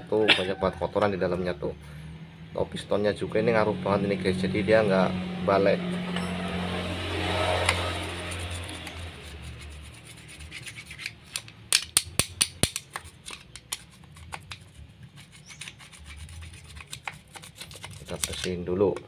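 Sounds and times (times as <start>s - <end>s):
hands rubbing and handling parts: 7.5s - 19.0s
sharp clicks and taps of metal parts: 10.9s - 14.7s.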